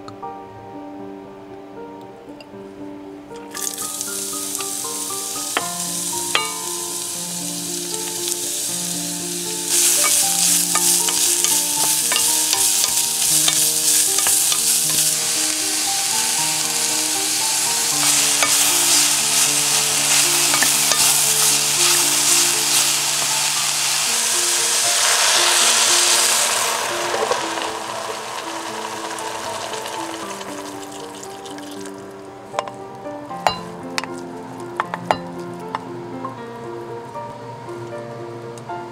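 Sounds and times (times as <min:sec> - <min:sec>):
carrot sizzling in oil: 0:03.5 - 0:32.8
spatula tapping pot: 0:06.3 - 0:06.8, 0:09.7 - 0:15.1, 0:17.9 - 0:23.8, 0:33.4 - 0:34.2.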